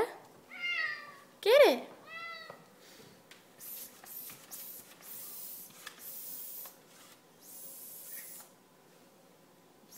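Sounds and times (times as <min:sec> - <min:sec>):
air pump hissing bursts: 0:03.6 - 0:06.8, 0:07.4 - 0:08.6.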